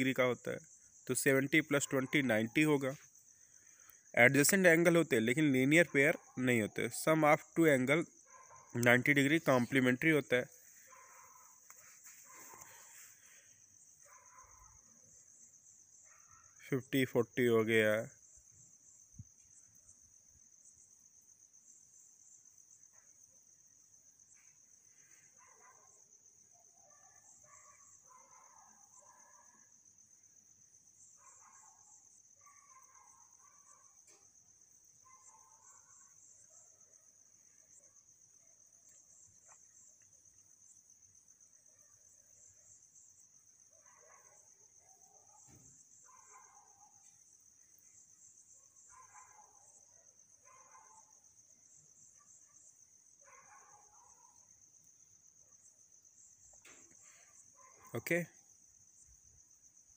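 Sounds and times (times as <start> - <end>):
soft scattered sounds: 8.8 - 14.6.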